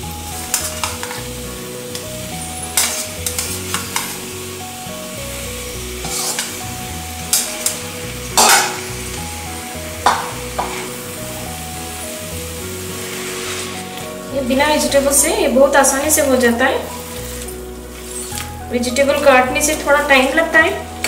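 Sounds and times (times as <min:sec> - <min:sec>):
food sizzling in frying pan: 0:00.0 - 0:21.0
metal spoon scraping bowl: 0:06.0 - 0:06.5.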